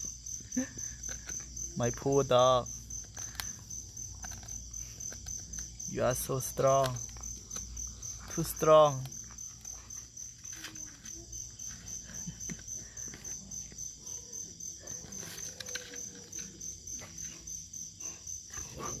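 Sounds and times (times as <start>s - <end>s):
crickets chirping: 0.0s - 19.0s
dog gnawing coconut husk: 6.6s - 19.0s.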